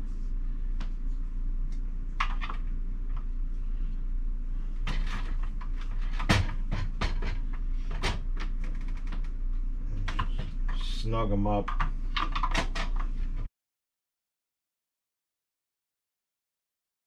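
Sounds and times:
plastic housings clicking and knocking: 11.6s - 13.1s.

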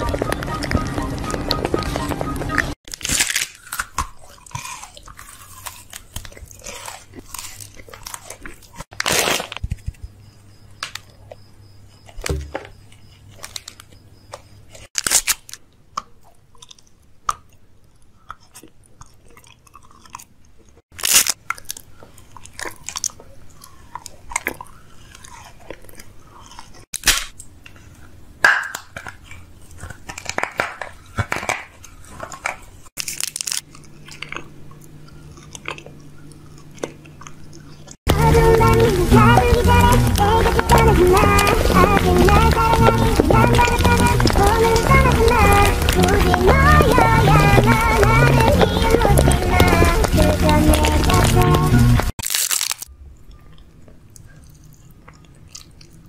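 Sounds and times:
chewing sounds: 0.0s - 10.1s, 10.7s - 56.0s
crisp bites into crunchy food: 2.9s - 10.0s, 14.7s - 15.6s, 20.9s - 27.4s, 33.0s - 37.0s, 37.6s - 52.9s.

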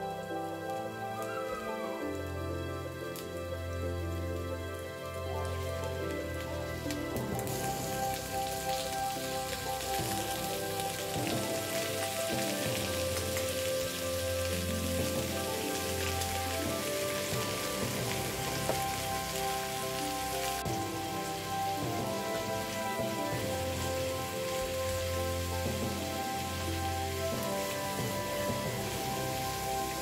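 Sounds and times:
chicken sizzling in hot oil: 6.5s - 30.0s.

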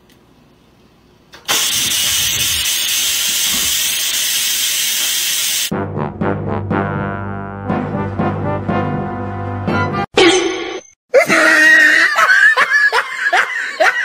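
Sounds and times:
steam hissing from vent: 1.5s - 5.7s
brass-heavy music: 5.7s - 10.1s.

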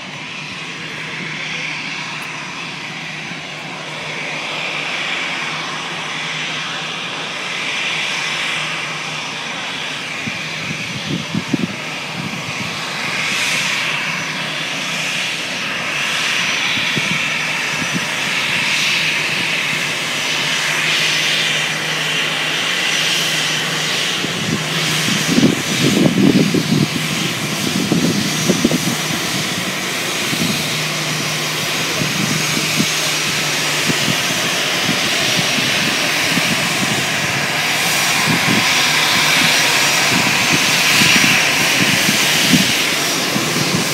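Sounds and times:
jet engines whining: 0.0s - 43.9s
low buffeting rumbles: 16.4s - 43.9s.

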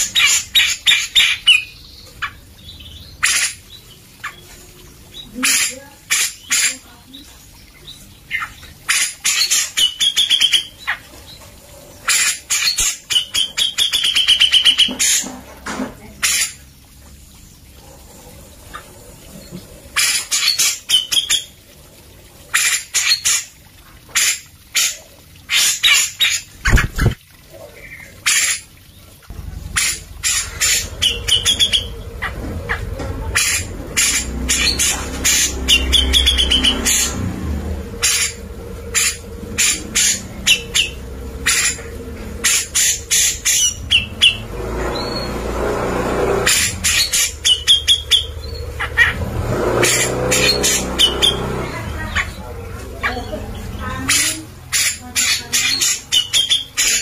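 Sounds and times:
low hum: 29.2s - 54.6s
bird chattering and whistling: 29.8s - 37.2s, 37.9s - 45.3s, 49.8s - 57.0s.

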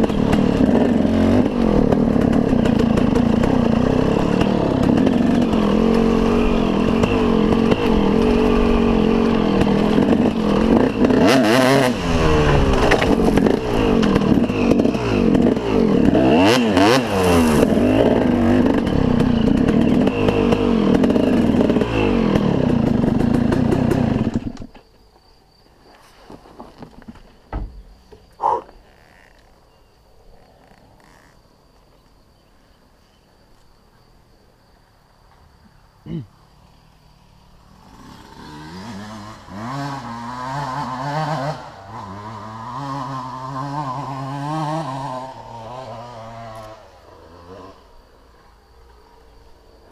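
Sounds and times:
motocross engine revving: 0.0s - 24.7s, 37.7s - 48.0s.

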